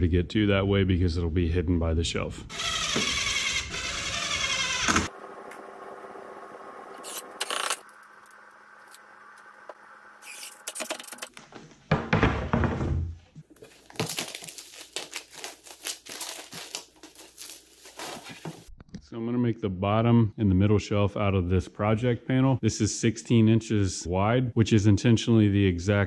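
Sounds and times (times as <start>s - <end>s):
impact driver driving screw: 2.5s - 5.1s
plastic wrapping crackling: 13.5s - 18.7s.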